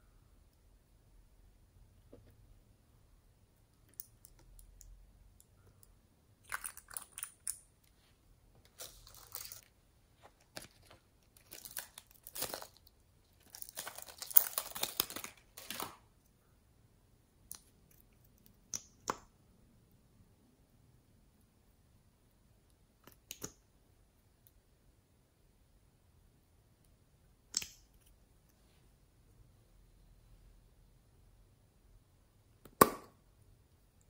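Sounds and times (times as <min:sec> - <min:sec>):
plastic crinkling: 0:08.7 - 0:16.0.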